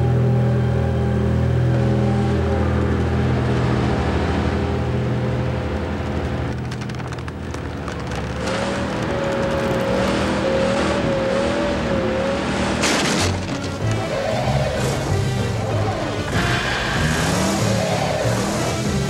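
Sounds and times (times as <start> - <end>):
cartoon truck engine rumbling: 0.0 - 19.0
tense background music: 0.0 - 19.0
crackling clicks: 6.0 - 10.3.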